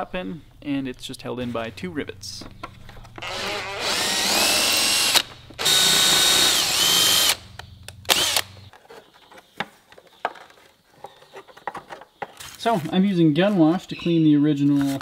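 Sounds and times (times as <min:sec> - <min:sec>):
cordless drill drilling rivets: 0:03.2 - 0:07.4, 0:08.1 - 0:08.7.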